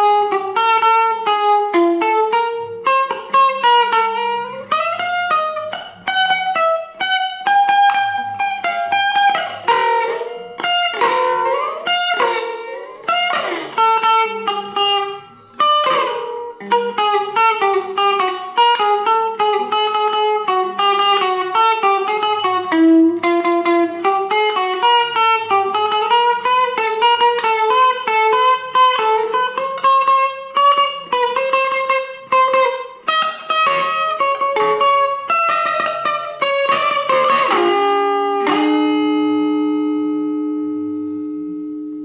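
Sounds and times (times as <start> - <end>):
electric guitar melody with bends: 0.0 - 42.0.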